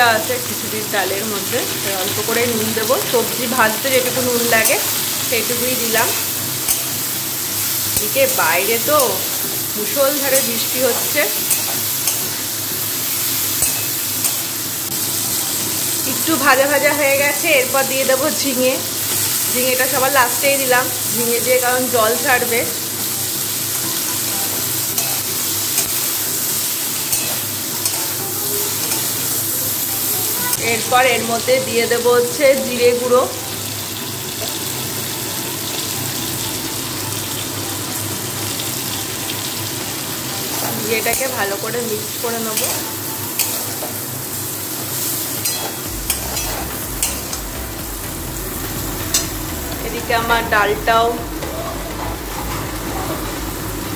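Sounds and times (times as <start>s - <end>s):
vegetables sizzling in oil: 0.0s - 53.9s
metal spatula scraping pan: 45.4s - 47.4s.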